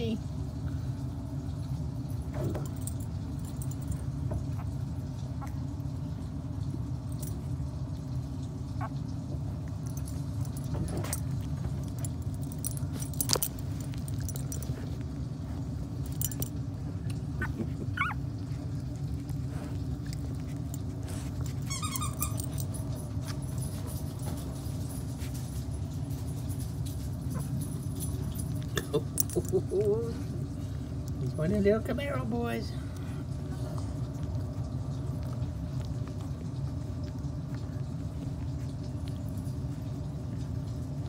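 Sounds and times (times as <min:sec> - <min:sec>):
low hum: 0:00.0 - 0:31.4
puppies squeaking and whimpering: 0:17.4 - 0:18.7, 0:21.5 - 0:22.7.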